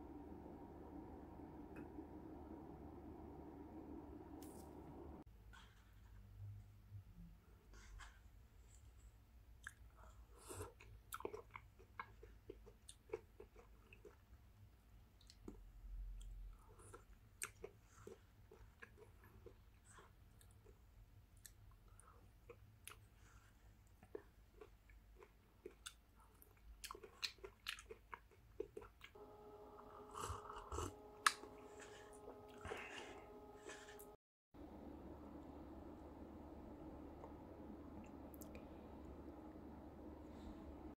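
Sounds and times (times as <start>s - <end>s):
steady multi-tone hum: 0.0s - 5.3s, 29.2s - 40.9s
low room hum: 0.0s - 40.9s
chewing and wet mouth smacks: 10.6s - 14.2s, 16.2s - 19.8s, 23.9s - 29.2s
person sipping soup: 29.8s - 34.2s.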